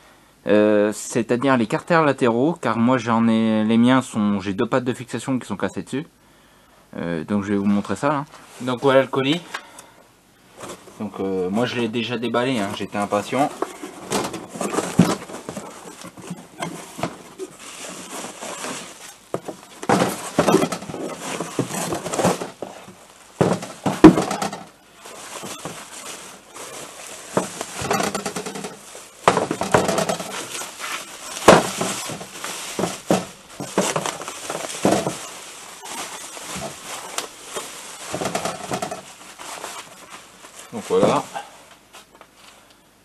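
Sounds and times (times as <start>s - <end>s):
bubble wrap rustling and crinkling: 10.6s - 42.6s
parts knocking on table: 19.3s - 22.8s, 23.4s - 24.7s, 27.4s - 30.4s.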